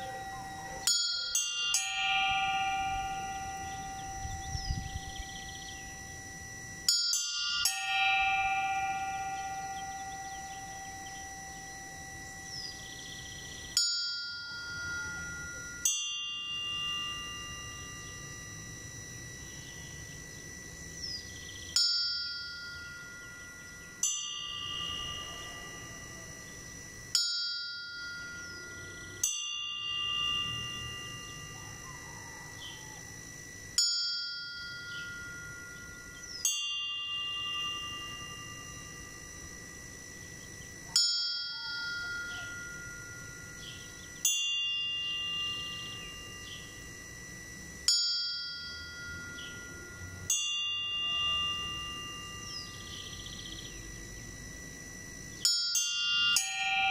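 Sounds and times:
higher-pitched bell tolling: 0:00.0 - 0:54.4, 0:55.0 - 0:56.9
lower-pitched bell tolling: 0:00.0 - 0:56.9.

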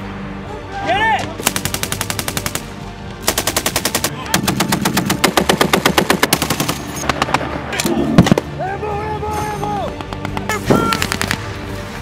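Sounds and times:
heavy machine gun firing bursts: 0:01.4 - 0:07.3.

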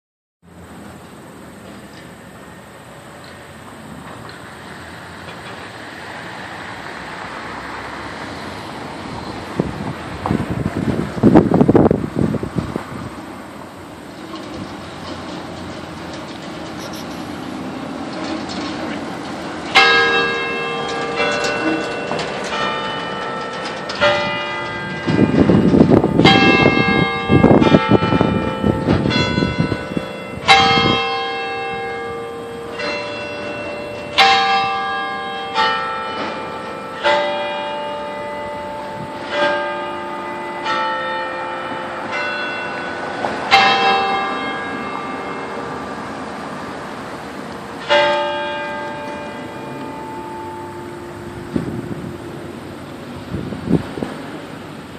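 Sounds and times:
carillon bells ringing: 0:19.7 - 0:46.0, 0:47.8 - 0:52.7.

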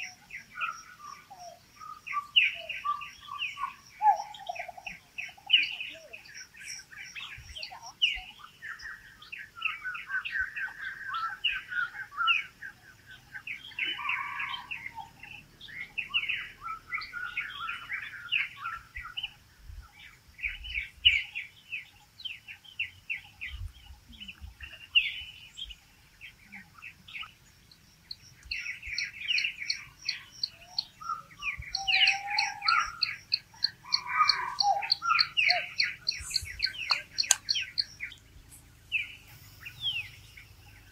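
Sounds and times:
small birds chirping: 0:00.0 - 0:40.9.

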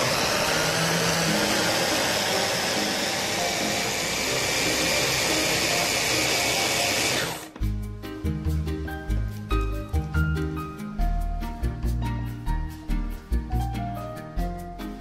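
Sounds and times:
electric chopper motor blending: 0:00.0 - 0:07.6.

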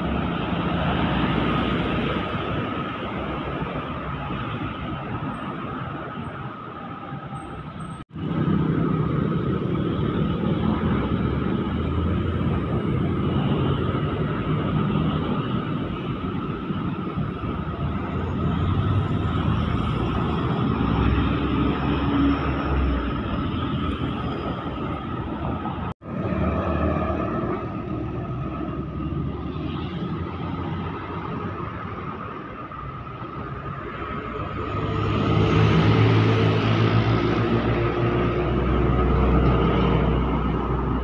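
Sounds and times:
diesel trucks passing: 0:00.0 - 0:41.0
tyres on road: 0:00.0 - 0:41.0.

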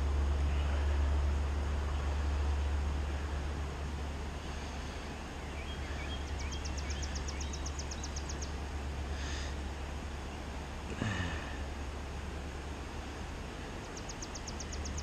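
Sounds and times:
low rumble: 0:00.0 - 0:13.6
songbird trilling: 0:05.4 - 0:08.6, 0:13.8 - 0:15.0.

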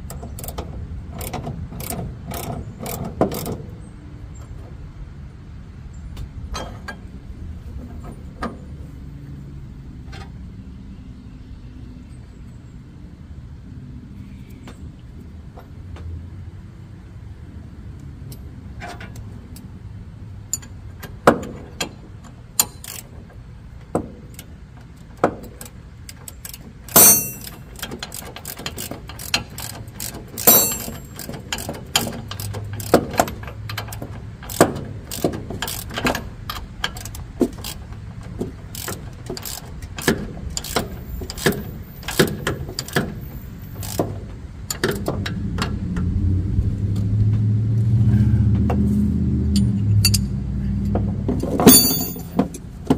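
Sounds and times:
ratchet wrench clicking: 0:22.6 - 0:23.0, 0:26.1 - 0:37.8, 0:38.7 - 0:43.1, 0:43.8 - 0:45.7, 0:49.5 - 0:50.4
metal tool clinks: 0:27.0 - 0:27.6, 0:30.4 - 0:31.4, 0:51.6 - 0:52.4.

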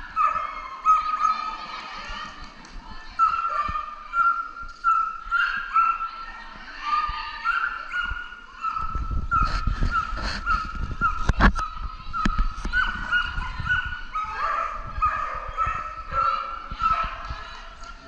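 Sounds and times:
dog yipping: 0:03.2 - 0:06.2, 0:07.4 - 0:17.2.

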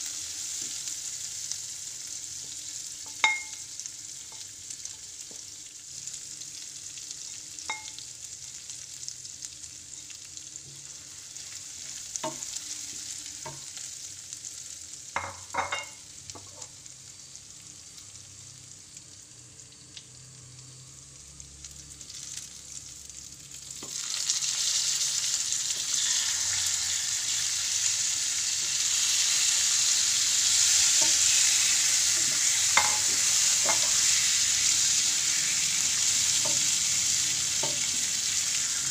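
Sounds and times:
spices sizzling in oil: 0:00.0 - 0:38.9
chicken hitting hot oil: 0:02.5 - 0:03.7, 0:23.7 - 0:38.9.

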